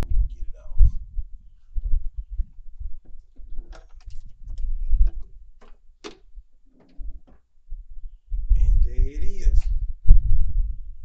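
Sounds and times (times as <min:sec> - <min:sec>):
clicks and knocks: 0:03.0 - 0:07.5
plastic rattles: 0:03.0 - 0:07.5.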